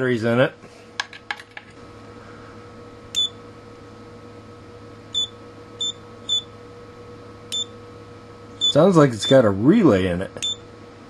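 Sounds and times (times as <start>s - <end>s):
low electrical hum: 0.0s - 11.0s
multimeter beeping: 5.1s - 6.5s, 7.5s - 7.7s.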